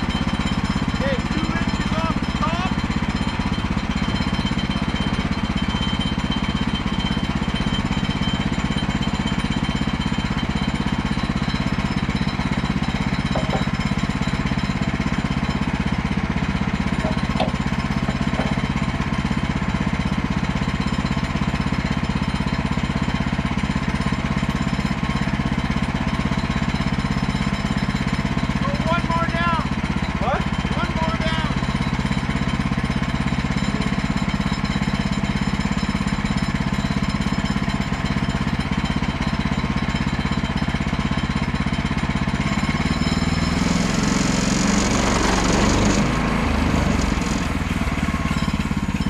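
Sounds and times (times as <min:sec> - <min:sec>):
gas engine running: 0:00.0 - 0:49.0.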